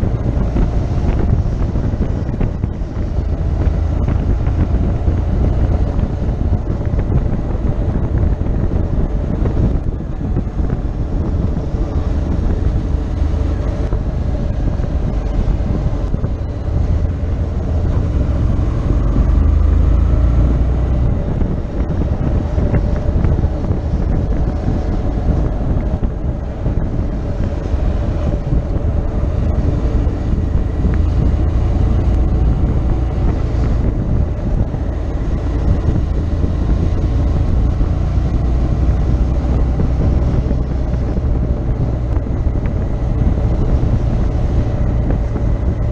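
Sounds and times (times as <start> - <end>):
motorcycle engine running: 0.0 - 45.9
wind rushing over microphone: 0.0 - 45.9.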